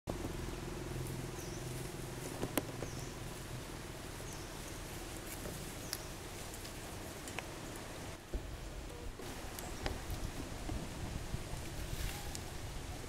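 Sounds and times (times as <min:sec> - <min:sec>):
low engine hum: 0:00.1 - 0:13.0.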